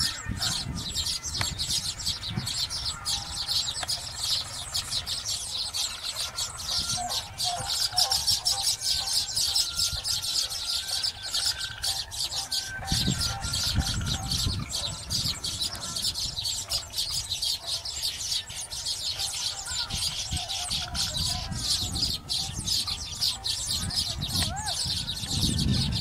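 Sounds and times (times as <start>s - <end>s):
birds chattering: 0.0s - 26.0s.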